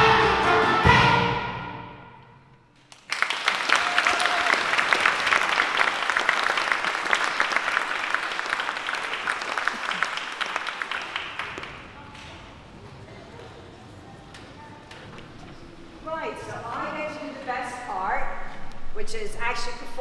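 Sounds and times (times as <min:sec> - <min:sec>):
music: 0:00.0 - 0:02.6
audience applauding: 0:02.8 - 0:12.1.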